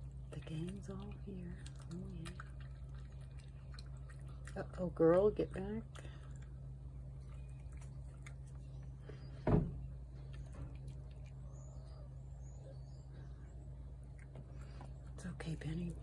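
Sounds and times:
cat chewing wet food: 0:00.0 - 0:09.1
low steady hum: 0:00.0 - 0:16.0
dull thump: 0:09.4 - 0:09.8.

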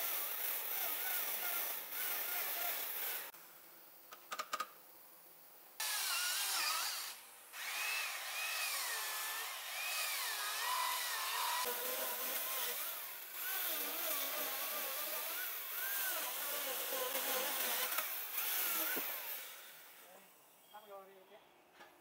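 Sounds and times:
electric chainsaw cutting wood: 0:00.0 - 0:03.3, 0:05.8 - 0:20.0.

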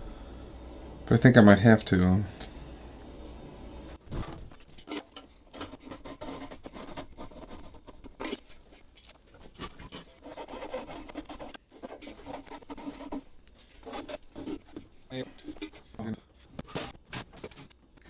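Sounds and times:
hand saw scraping wood: 0:05.5 - 0:08.4, 0:09.6 - 0:13.2, 0:13.8 - 0:14.8.

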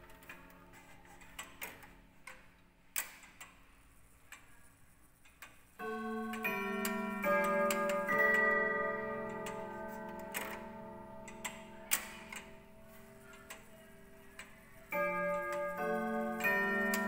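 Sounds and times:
clock ticking: 0:05.2 - 0:17.0
clock chime on gong rods: 0:05.8 - 0:17.0.

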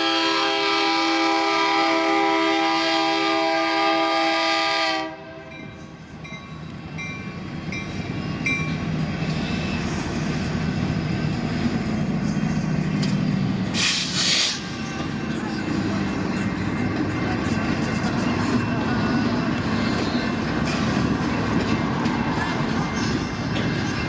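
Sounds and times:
locomotive air horn: 0:00.0 - 0:05.6.

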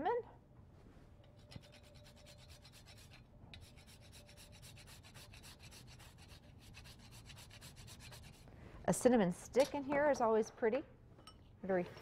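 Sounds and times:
spice scraping on grater: 0:01.4 - 0:08.5.

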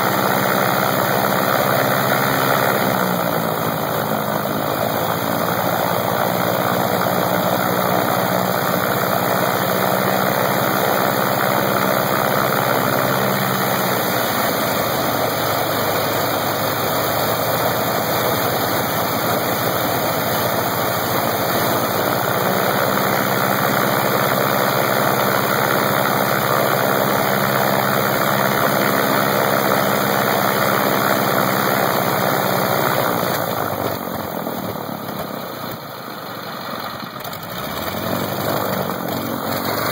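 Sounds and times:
radial aircraft engine running: 0:00.0 - 0:39.9.

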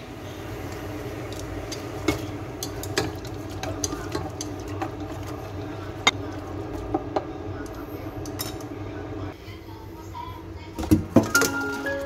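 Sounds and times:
water boiling in metal pot: 0:00.0 - 0:09.4.

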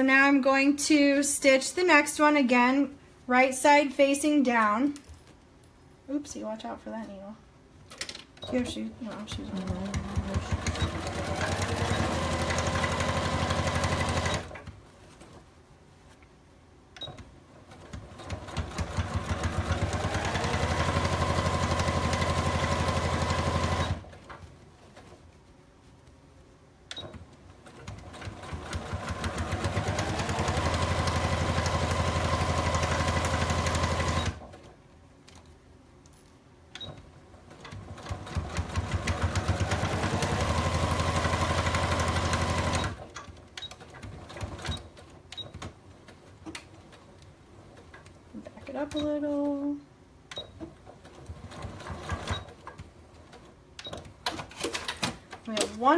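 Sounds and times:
sewing machine whirring: 0:08.5 - 0:14.7, 0:17.1 - 0:24.3, 0:27.1 - 0:34.7, 0:37.5 - 0:47.1, 0:50.5 - 0:54.9.

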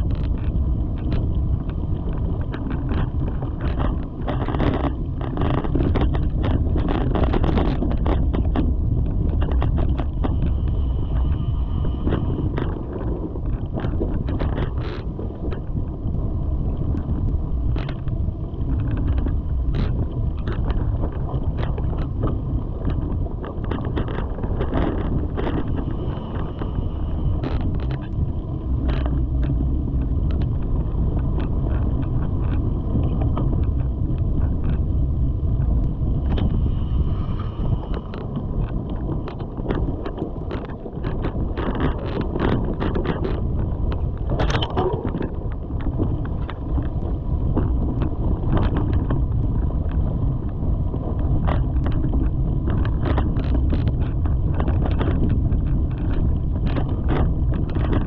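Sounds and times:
bike clicks and rattles: 0:00.0 - 0:11.4, 0:12.0 - 0:36.7, 0:37.6 - 0:58.0
wind rushing over microphone: 0:00.0 - 0:58.0.

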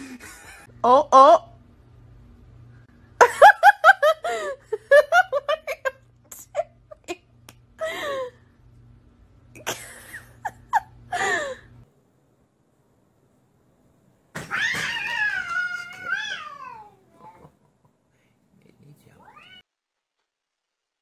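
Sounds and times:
person giggling: 0:00.0 - 0:00.7, 0:09.6 - 0:11.7.

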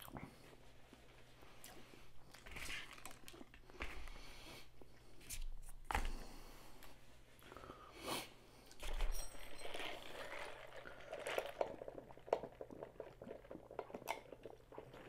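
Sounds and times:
slurping drink through a straw: 0:08.8 - 0:15.0.

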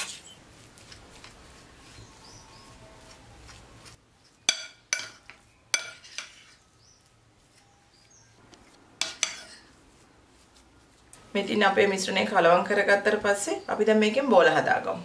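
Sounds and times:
spoon scraping in glass bowl: 0:02.0 - 0:09.8.

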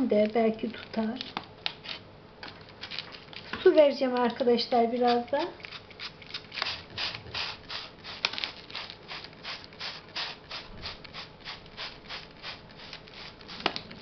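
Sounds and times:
spray bottle hissing: 0:06.6 - 0:13.9.

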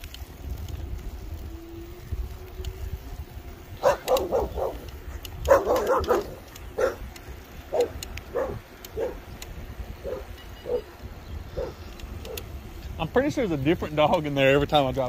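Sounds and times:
dog barking: 0:03.8 - 0:07.1, 0:07.7 - 0:09.2, 0:10.0 - 0:10.8, 0:11.6 - 0:12.4.

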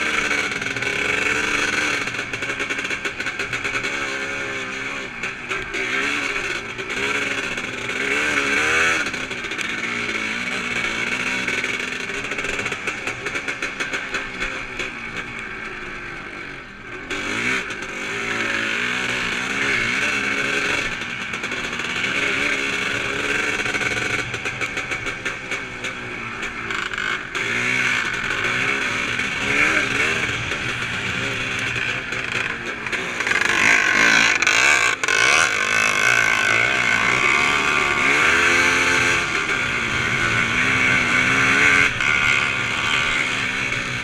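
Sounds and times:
motocross bike engine revving: 0:00.0 - 0:44.0.

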